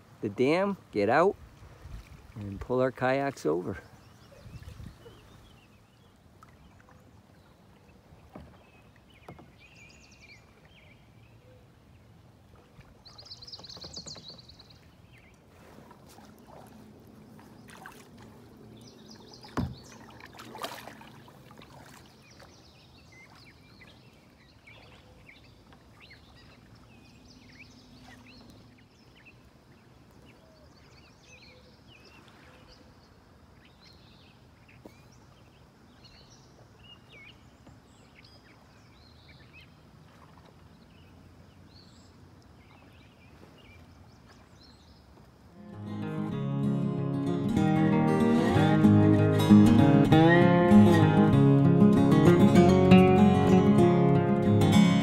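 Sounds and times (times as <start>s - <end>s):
kayak paddles splashing water: 0.0s - 33.8s, 34.6s - 45.6s
birds chirping: 0.2s - 39.8s.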